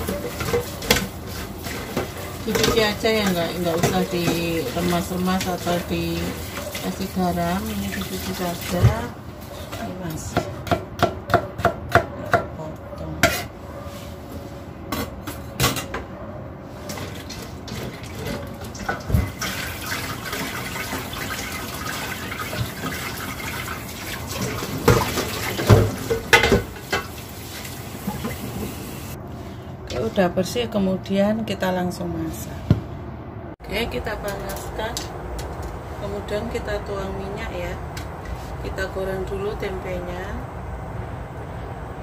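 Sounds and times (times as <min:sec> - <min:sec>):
water sloshing in a bowl: 0:00.0 - 0:09.9, 0:16.8 - 0:28.8.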